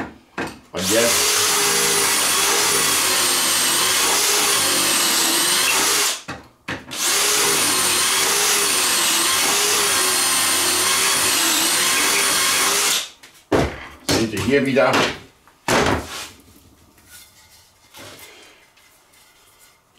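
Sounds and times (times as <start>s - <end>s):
drill boring into wood: 0.8s - 6.2s, 6.9s - 13.1s.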